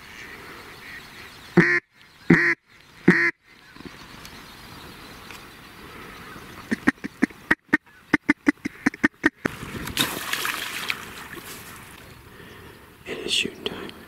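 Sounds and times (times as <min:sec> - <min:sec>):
duck quacking: 0:01.6 - 0:03.4, 0:06.7 - 0:09.5.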